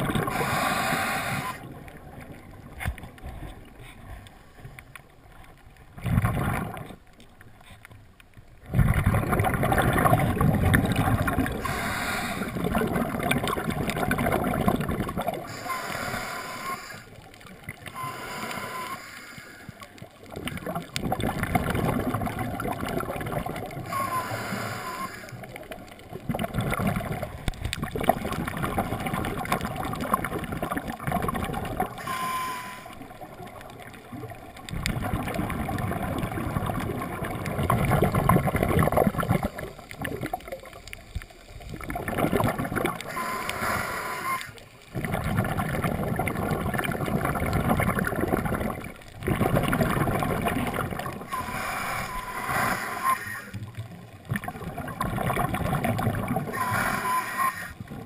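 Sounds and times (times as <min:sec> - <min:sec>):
exhaled bubbles gurgling underwater: 0:00.0 - 0:07.8, 0:08.4 - 0:58.0
brief whistling tone: 0:23.9 - 0:25.2, 0:32.1 - 0:32.9, 0:56.6 - 0:57.7.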